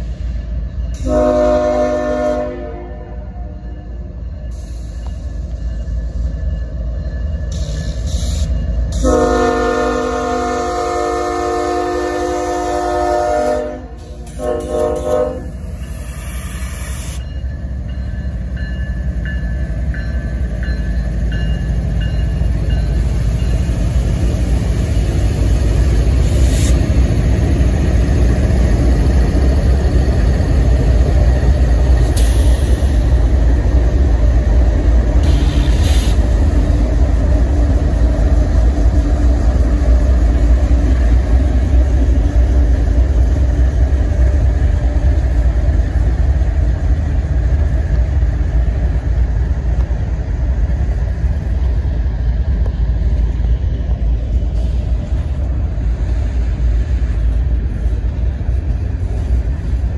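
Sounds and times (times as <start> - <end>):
train rumbling: 0.0 - 59.9
locomotive air horn blasts: 1.0 - 3.5, 9.0 - 15.6.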